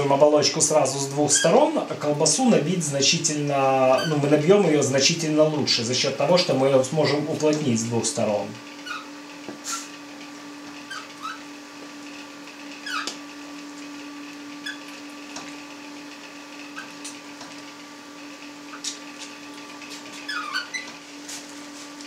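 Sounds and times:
steady low hum: 0.0 - 22.0
casing squeaks: 1.3 - 1.7, 3.9 - 4.3, 8.8 - 9.9, 10.8 - 11.5, 12.8 - 13.2, 20.1 - 21.0.

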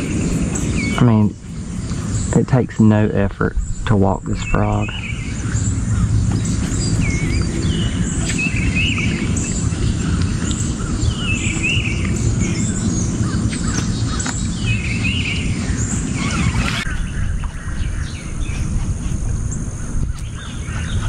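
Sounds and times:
birds chirping: 0.0 - 21.0
steady low rumble: 0.0 - 21.0.

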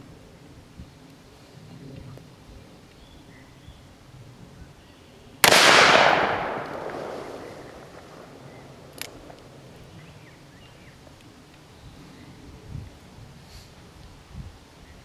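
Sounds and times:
revolver gunshot with echo: 5.4 - 9.3
sharp click: 8.9 - 9.4.

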